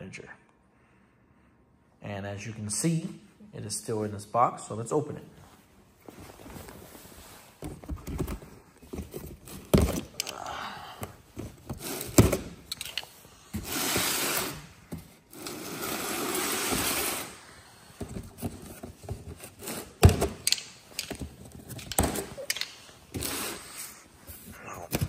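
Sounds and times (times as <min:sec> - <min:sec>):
plastic clips snapping: 0:20.4 - 0:21.2, 0:21.8 - 0:22.8.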